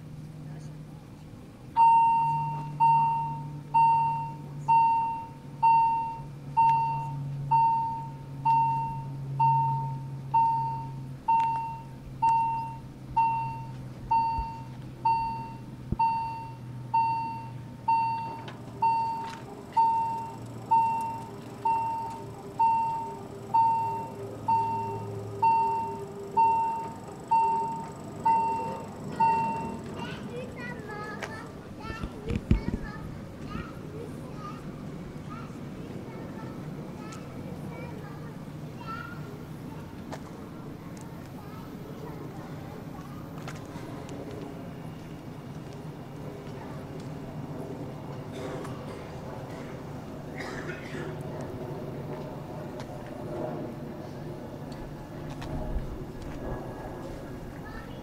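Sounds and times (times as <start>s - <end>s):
low hum: 0.0s - 58.0s
electronic warning bell dinging: 1.8s - 29.9s.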